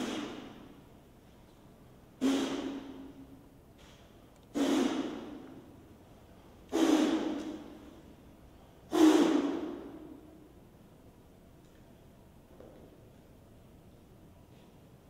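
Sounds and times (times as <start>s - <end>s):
man exhaling forcefully: 0.0s - 0.8s, 2.2s - 3.1s, 4.5s - 5.5s, 6.7s - 7.8s, 8.9s - 10.2s.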